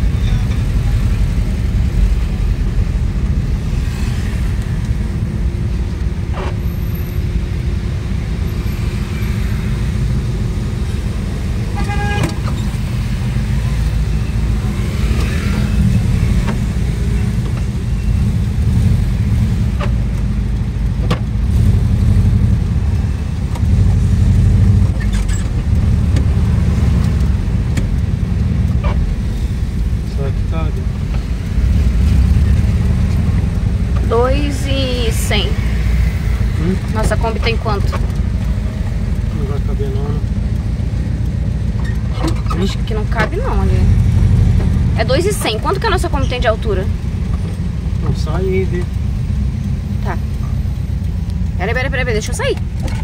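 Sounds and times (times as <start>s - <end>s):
road noise: 0.0s - 53.0s
van engine rumble: 0.0s - 53.0s
car horn toot: 11.7s - 12.5s.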